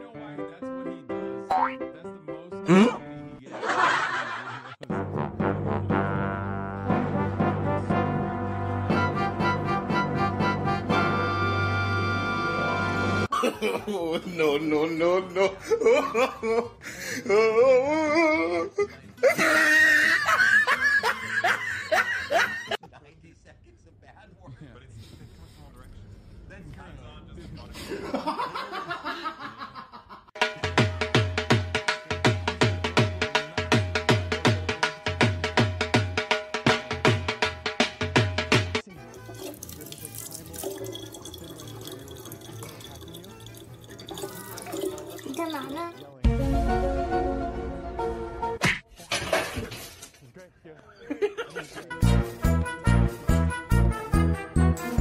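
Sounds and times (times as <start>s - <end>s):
music playing: 0.0s - 3.8s, 4.8s - 13.3s, 38.1s - 48.6s, 51.8s - 55.0s
tap water filling plastic bottle: 39.0s - 46.1s.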